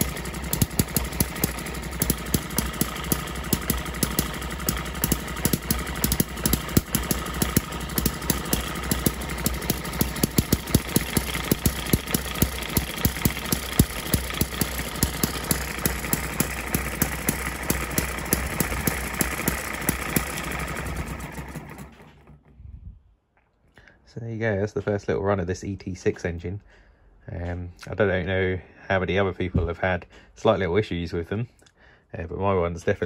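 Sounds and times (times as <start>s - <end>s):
small engine firing fast: 0.0s - 22.4s.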